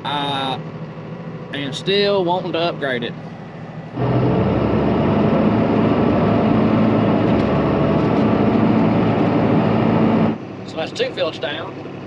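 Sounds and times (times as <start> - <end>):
tractor diesel engine running: 0.0 - 12.0
steady rushing noise: 3.8 - 10.4.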